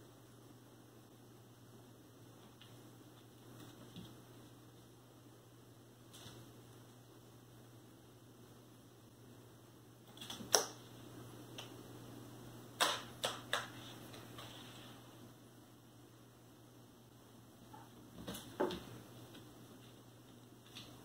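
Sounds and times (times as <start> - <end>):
low room hum: 0.0 - 21.0.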